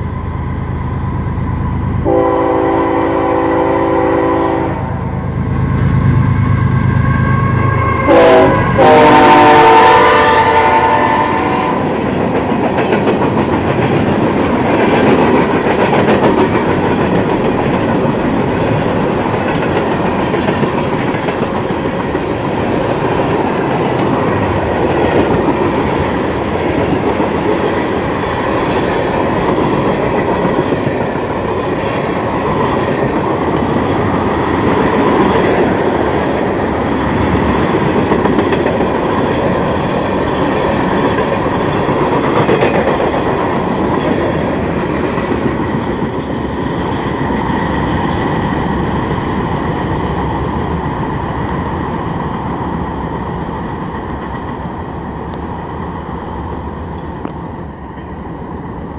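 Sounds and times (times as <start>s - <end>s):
train wheels on rails: 0.0s - 58.9s.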